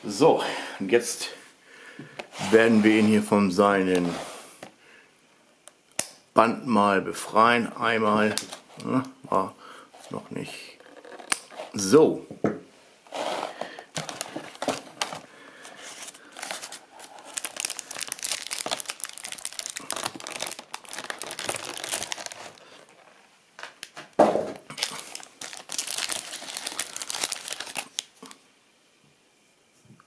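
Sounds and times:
plastic film crinkling: 13.5s - 28.4s.

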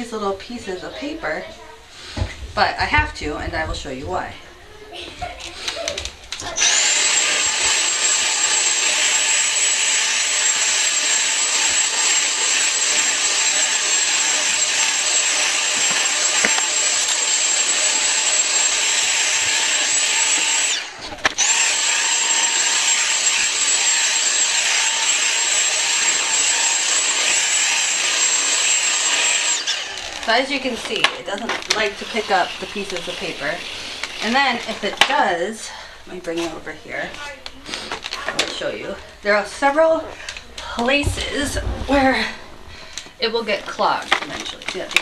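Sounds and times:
vacuum cleaner whining: 5.5s - 35.2s.

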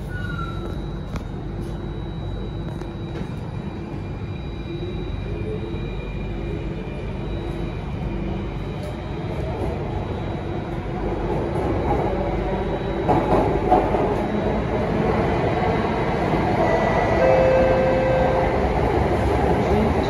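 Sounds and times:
train wheels rumbling on rail: 5.4s - 20.0s
train clatter: 13.0s - 14.3s.

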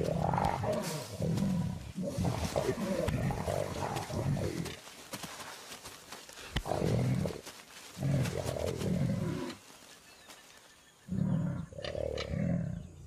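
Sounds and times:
big cats growling: 0.0s - 4.8s, 6.6s - 9.6s, 11.0s - 13.0s.

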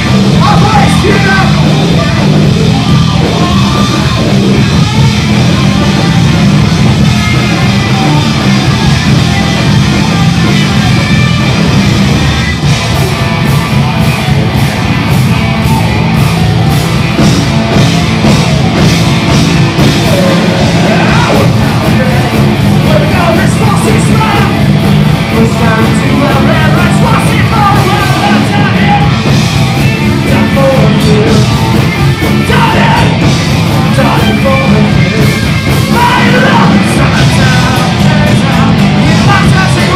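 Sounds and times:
bass guitar: 0.0s - 39.9s
drums with steady beat: 0.0s - 39.9s
electric guitar: 0.0s - 39.9s
person singing: 19.8s - 39.9s.

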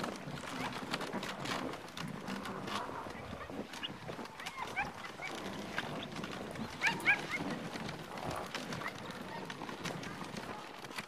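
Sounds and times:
sled dogs yelping: 2.6s - 9.8s.

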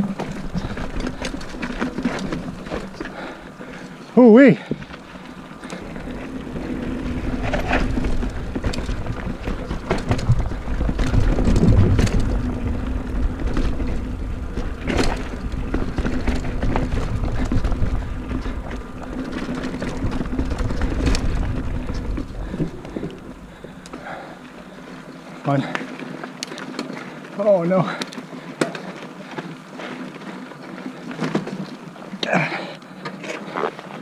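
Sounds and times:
bike knocking over bumps: 0.0s - 3.8s, 4.6s - 24.8s, 30.8s - 33.2s
bike tyres rumbling on trail: 0.0s - 34.0s.

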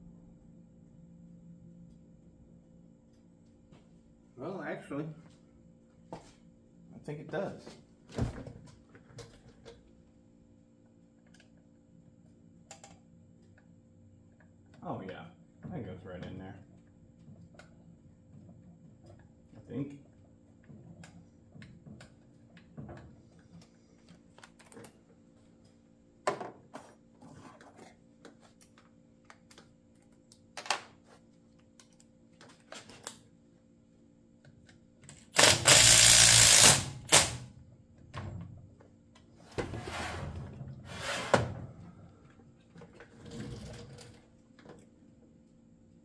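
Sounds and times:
cordless driver whirring: 35.4s - 37.3s.

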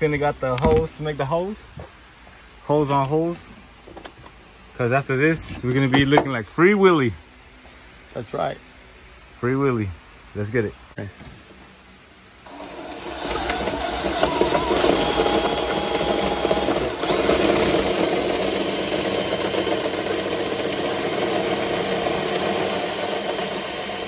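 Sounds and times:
hole saw grinding through metal: 12.5s - 24.0s.

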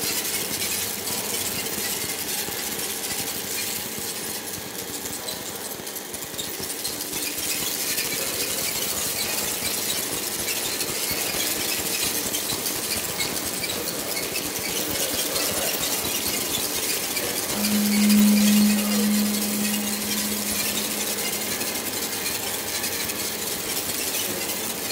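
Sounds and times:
electronic noise music: 17.5s - 22.2s
loud low steady tone: 17.5s - 22.5s.

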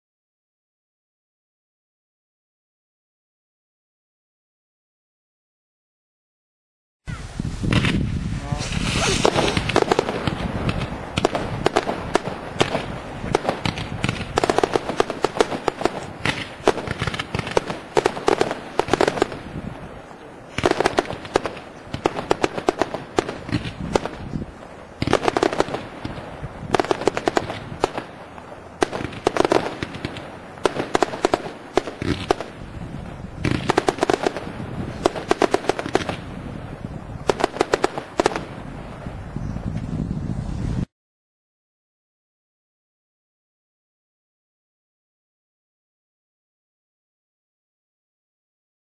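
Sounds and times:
fireworks launching and banging: 7.4s - 39.8s.

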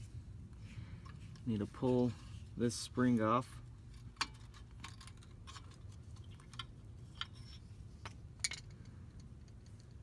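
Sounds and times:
metallic spring clicks and clinks: 3.9s - 10.0s.

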